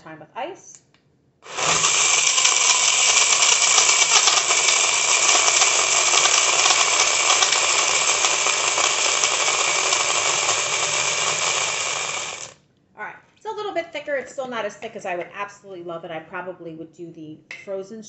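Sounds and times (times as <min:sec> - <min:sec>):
blender running: 0:01.4 - 0:12.6
ice clicking in blender: 0:01.5 - 0:12.6.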